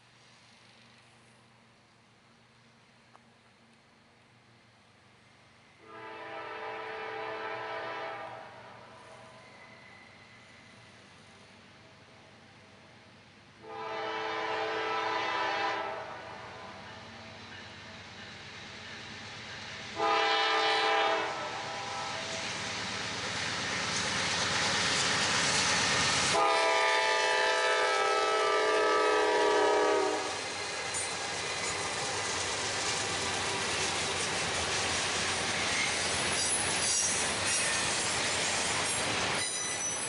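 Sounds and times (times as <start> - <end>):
train running by: 0.0 - 40.0
train air horn blasts: 5.8 - 9.2, 13.6 - 17.0, 20.0 - 22.4, 26.3 - 30.4
high wheel squeals: 35.5 - 40.0.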